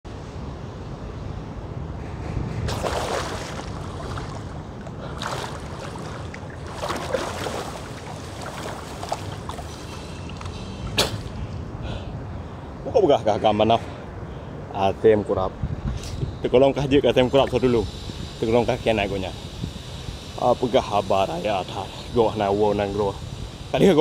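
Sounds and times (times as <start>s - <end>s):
wind on microphone: 0.1s - 12.8s, 15.4s - 20.7s
pool water splashing: 2.7s - 11.7s.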